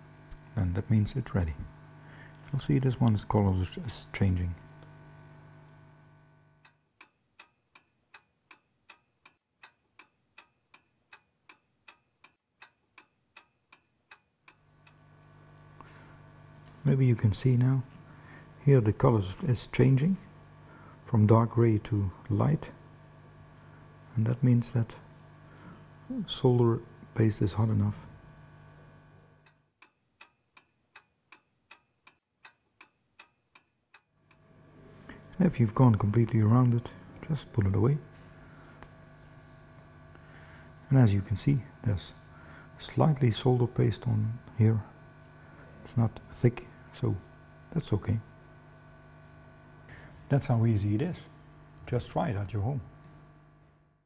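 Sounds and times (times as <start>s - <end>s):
steady low hum: 0.0s - 6.9s, 14.1s - 29.6s, 34.2s - 54.0s
clock ticking: 6.6s - 15.0s, 29.4s - 34.4s.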